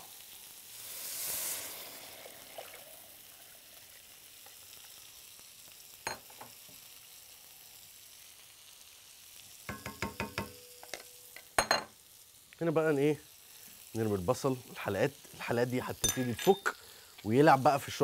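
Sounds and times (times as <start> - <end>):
food sizzling in a pot: 0.0 - 18.0
utensil knocking on metal pot: 9.7 - 11.0.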